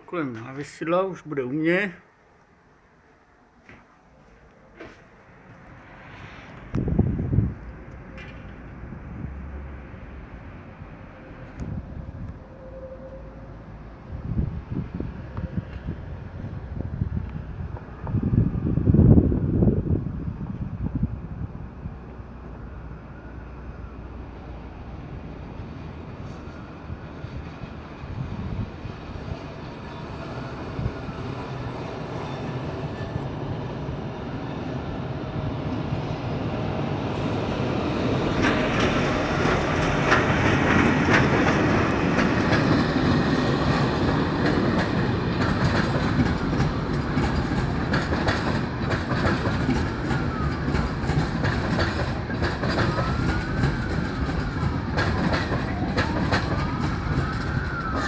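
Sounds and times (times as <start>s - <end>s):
electric locomotive rumbling: 3.0s - 58.0s
wheels clacking over rail joints: 37.6s - 58.0s.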